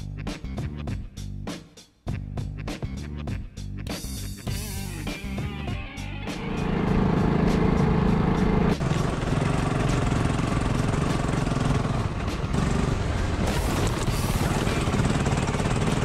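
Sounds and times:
motorcycle engine on gravel track: 0:06.5 - 0:16.0.

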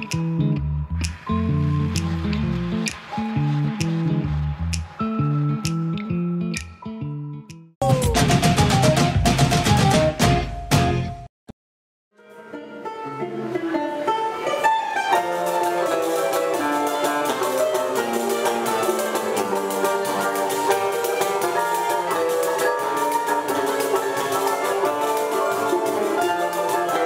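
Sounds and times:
plucked mandolin melody: 0:12.2 - 0:27.0.

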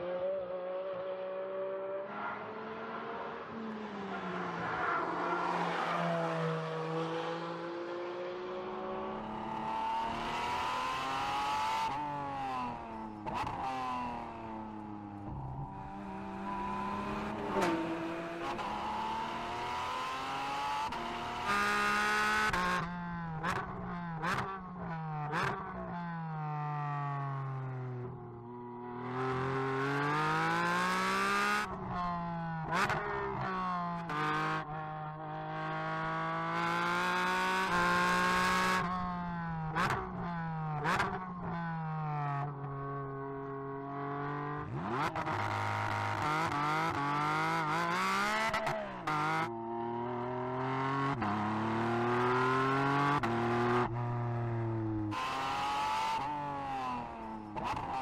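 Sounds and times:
race car engine revving: 0:44.0 - 0:49.4.

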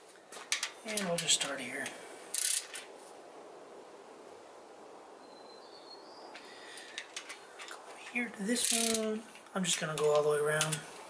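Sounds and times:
faint room hiss: 0:00.0 - 0:11.0
torque wrench clicks: 0:02.3 - 0:02.7, 0:08.6 - 0:09.1
torque wrench ratcheting: 0:02.3 - 0:02.7, 0:08.6 - 0:09.1.

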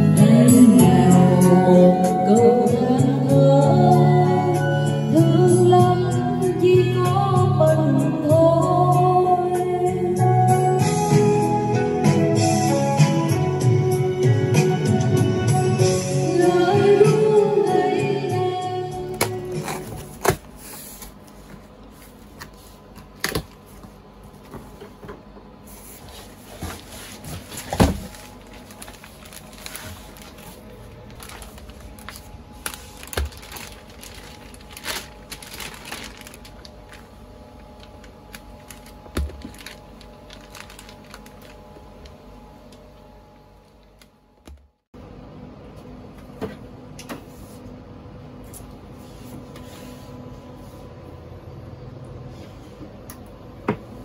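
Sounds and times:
room noise with low hum: 0:00.0 - 0:54.0
cardboard and plastic rustling: 0:19.2 - 0:42.2.

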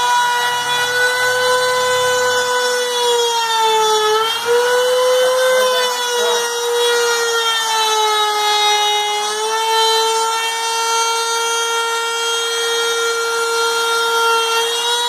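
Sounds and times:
router whining cutting wood: 0:00.0 - 0:15.0.

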